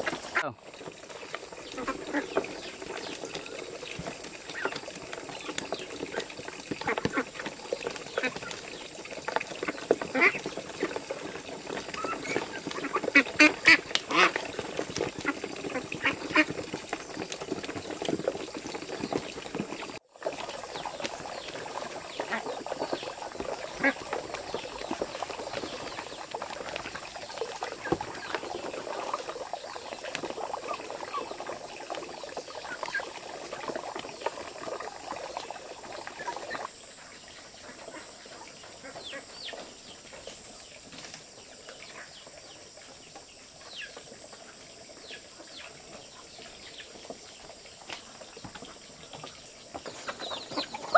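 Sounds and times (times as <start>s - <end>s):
ducks calling: 0.0s - 8.7s, 9.3s - 18.2s, 20.5s - 40.3s, 48.0s - 50.9s
ducks splashing in water: 0.0s - 50.9s
insects chirping: 0.0s - 50.9s.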